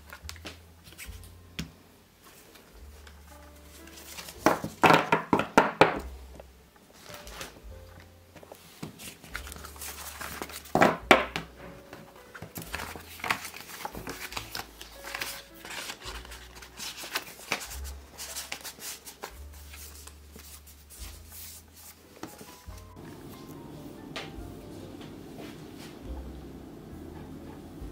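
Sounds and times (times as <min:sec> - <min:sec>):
paper rustling: 0:02.2 - 0:05.6, 0:06.8 - 0:23.6.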